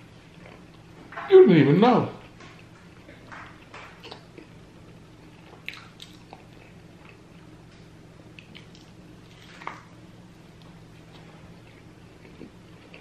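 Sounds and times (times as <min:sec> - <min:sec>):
faint steady hum: 0:00.0 - 0:13.0
wet chewing mouth smacks: 0:05.5 - 0:06.7.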